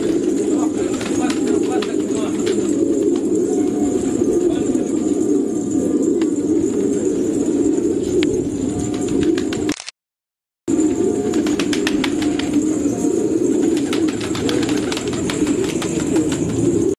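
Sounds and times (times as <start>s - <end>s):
pigeons cooing: 0.0s - 9.7s, 10.7s - 16.9s
sharp clicks: 9.7s - 10.0s.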